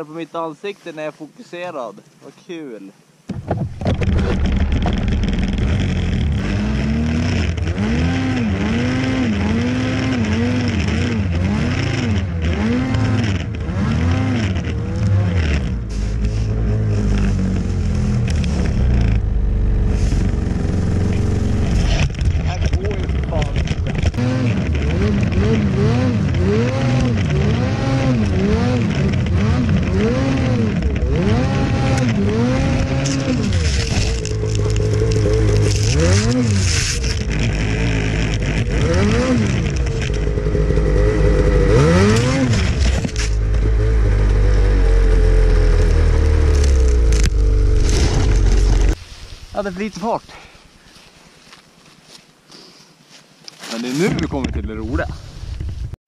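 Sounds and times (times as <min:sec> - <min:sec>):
low rumble: 0:03.6 - 0:07.8, 0:14.9 - 0:50.8
snowmobile engine revving: 0:03.9 - 0:50.2.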